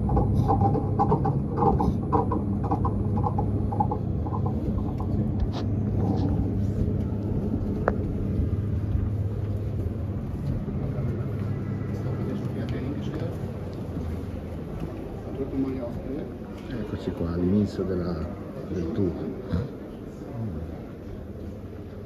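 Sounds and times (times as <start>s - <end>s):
distant visitors: 0.0s - 22.0s
ventilation rumble: 0.0s - 22.0s.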